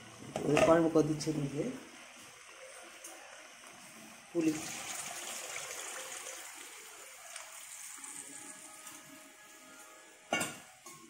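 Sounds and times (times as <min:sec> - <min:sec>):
water pouring into pan: 0:04.3 - 0:09.1.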